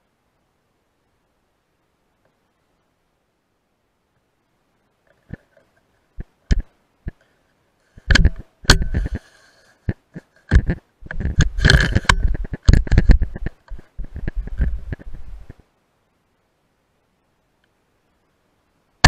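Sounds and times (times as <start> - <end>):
sharp clicks: 8.0 - 9.3.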